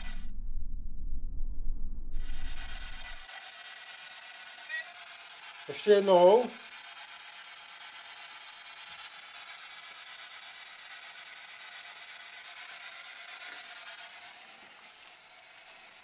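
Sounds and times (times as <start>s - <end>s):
static hiss from phone speaker: 0.0s - 0.3s.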